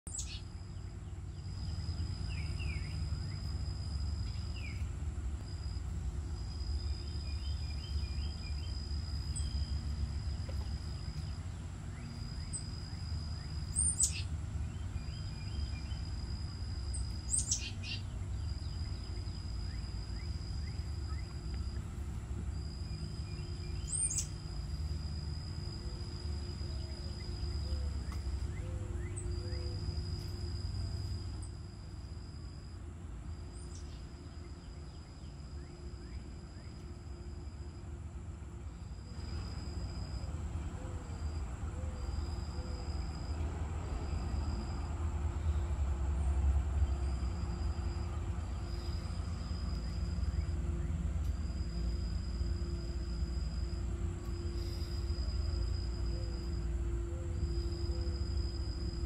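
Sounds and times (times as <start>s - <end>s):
wild birds calling: 0.1s - 24.9s, 25.8s - 30.4s
high-pitched insect drone: 0.2s - 32.8s, 47.0s - 59.0s.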